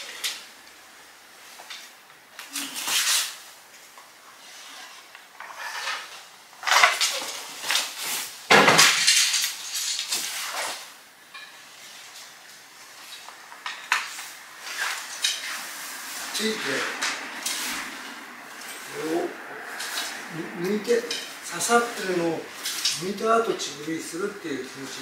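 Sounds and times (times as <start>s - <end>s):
sword blades scraping and clinking: 14.6s - 15.7s, 19.7s - 23.1s.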